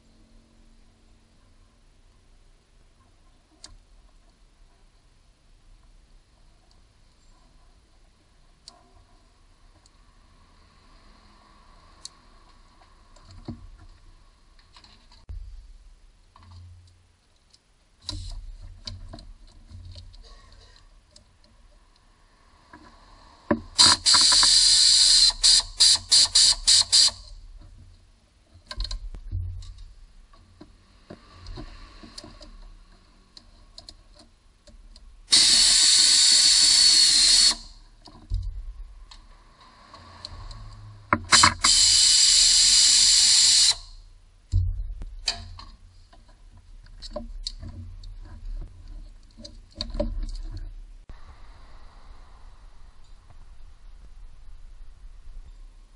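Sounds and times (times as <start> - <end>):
pneumatic wrench running: 23.8 - 27.3, 35.3 - 37.8, 41.3 - 43.9.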